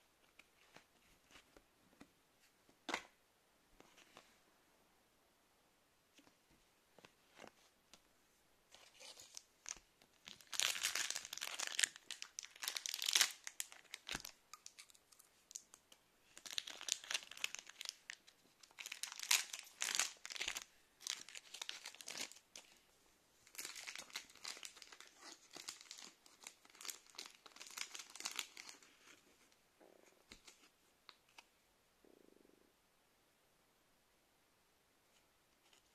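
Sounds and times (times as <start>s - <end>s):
plastic wrappers crinkling and tearing: 8.7s - 22.8s, 23.4s - 29.2s.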